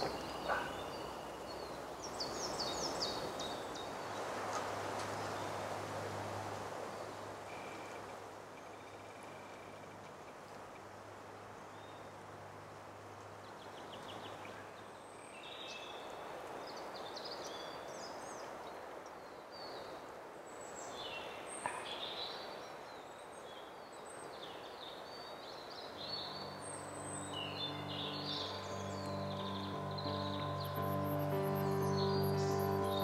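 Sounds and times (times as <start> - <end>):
soft background music: 0.0 - 3.2, 25.8 - 33.0
songbirds singing and chirping: 0.0 - 5.6, 20.9 - 33.0
rushing forest background: 0.0 - 19.2, 24.2 - 33.0.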